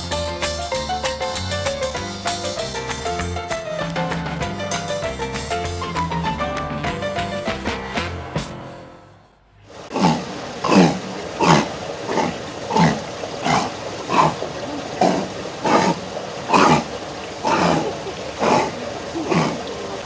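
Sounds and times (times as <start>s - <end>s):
seal calling: 9.9s - 20.0s.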